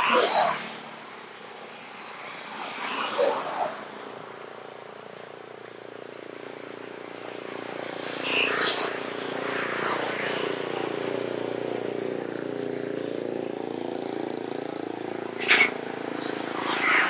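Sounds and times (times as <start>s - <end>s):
motor scooter passing by: 0.0s - 1.0s, 1.9s - 4.1s, 6.5s - 17.0s.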